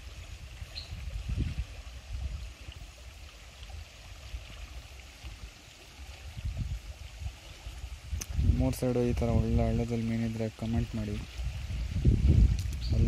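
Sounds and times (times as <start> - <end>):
river water rushing: 0.0 - 8.2.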